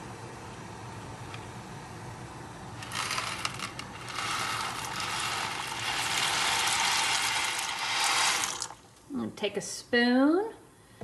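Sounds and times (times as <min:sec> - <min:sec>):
dry pasta pouring into saucepan: 0:02.8 - 0:08.9.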